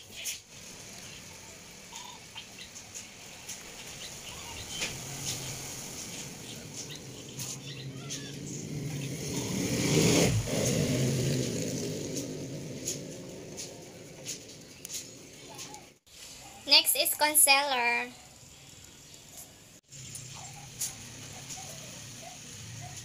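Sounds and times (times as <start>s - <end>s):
engine hum: 0.0s - 16.1s.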